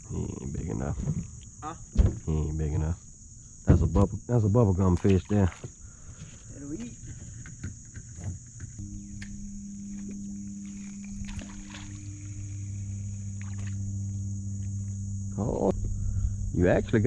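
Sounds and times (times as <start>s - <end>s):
high insect drone: 0.0s - 17.0s
boat motor hum: 4.6s - 17.0s.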